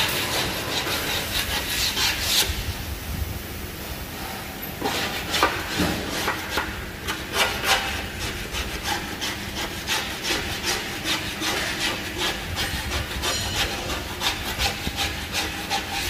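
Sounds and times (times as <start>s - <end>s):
rasping scraping strokes: 0.0s - 2.6s, 4.8s - 16.0s.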